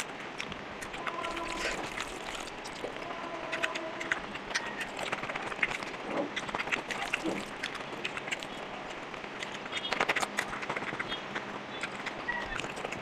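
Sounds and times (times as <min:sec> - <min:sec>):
wet squishing of rice by hand: 0:00.0 - 0:03.0, 0:03.6 - 0:09.7.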